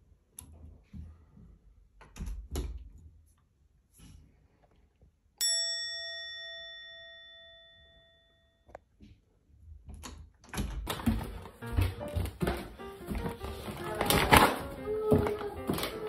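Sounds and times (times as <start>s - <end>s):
bell ding: 5.4s - 8.7s
music: 11.2s - 16.0s.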